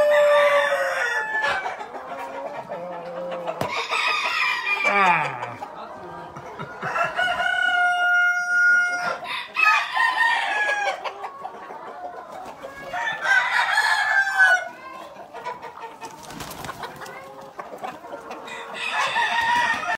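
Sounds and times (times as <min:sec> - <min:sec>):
roosters crowing: 0:00.0 - 0:05.6, 0:06.8 - 0:11.3, 0:12.6 - 0:14.9, 0:18.4 - 0:19.9
chickens clucking: 0:00.0 - 0:19.9.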